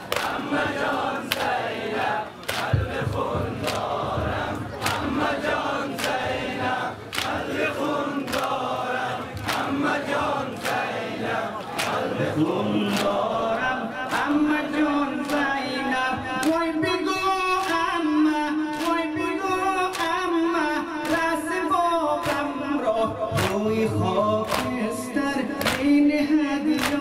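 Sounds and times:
chest-beating slaps in unison: 0:00.0 - 0:01.8, 0:02.4 - 0:07.5, 0:08.2 - 0:11.0, 0:11.7 - 0:12.1, 0:22.2 - 0:22.5, 0:23.4 - 0:23.7, 0:24.4 - 0:24.8, 0:25.6 - 0:26.0, 0:26.7 - 0:27.0
men chanting with held notes: 0:00.0 - 0:27.0.

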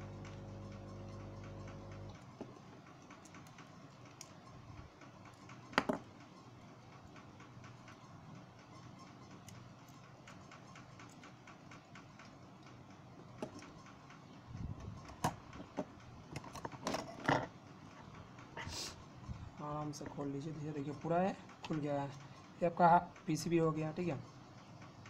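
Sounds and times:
clicks and taps of phone parts: 0:05.7 - 0:06.0.

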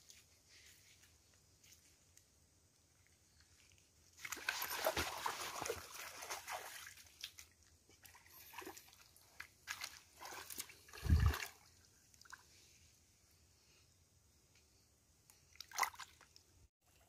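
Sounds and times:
stream water splashing: 0:04.1 - 0:12.4, 0:15.5 - 0:16.4.

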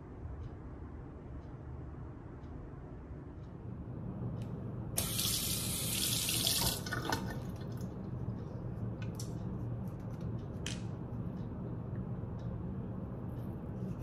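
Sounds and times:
steady low hum: 0:00.0 - 0:14.0
water running: 0:05.0 - 0:07.8.

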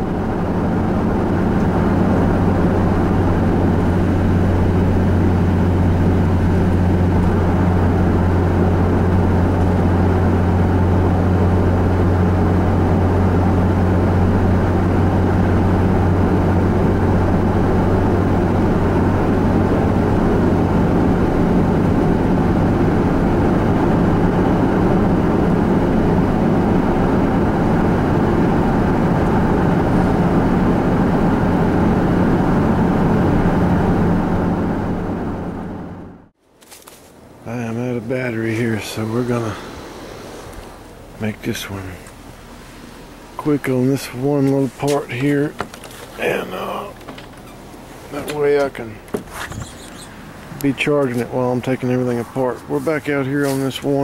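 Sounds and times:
car cruising on highway: 0:00.0 - 0:36.4, 0:37.1 - 0:54.0
low drone: 0:37.4 - 0:47.1, 0:48.2 - 0:54.0.

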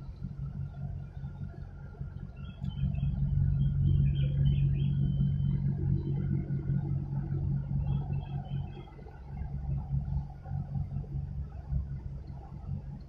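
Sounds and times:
low engine rumble: 0:00.0 - 0:13.0.

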